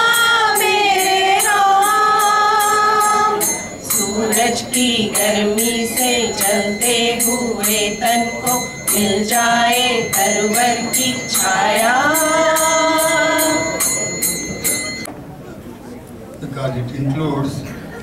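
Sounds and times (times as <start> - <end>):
women singing together: 0.0 - 14.1
metallic jingle beat: 0.0 - 15.1.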